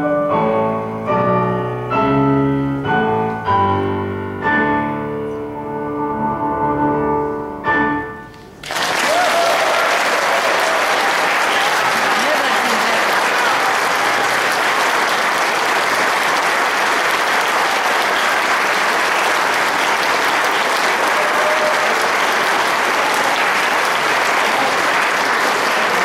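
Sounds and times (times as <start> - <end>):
audience applauding: 8.5 - 26.0.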